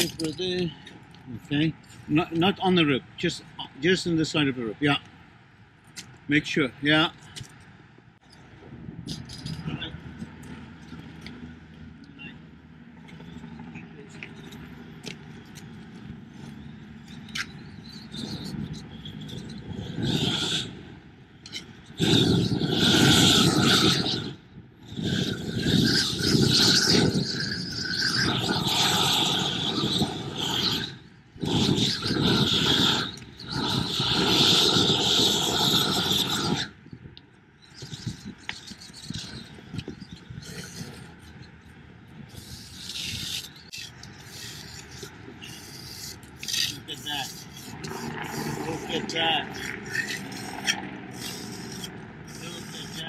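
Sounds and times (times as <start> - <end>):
propane torch hissing: 19.4 - 20.7, 21.9 - 36.7, 42.4 - 53.0.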